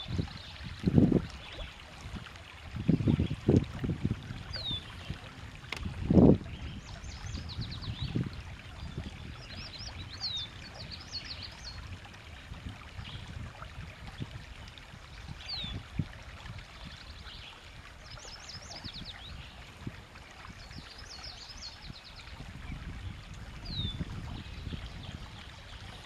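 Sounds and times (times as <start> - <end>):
water trickling around canoe: 0.0 - 26.0
songbird singing: 4.3 - 12.0, 16.8 - 26.0.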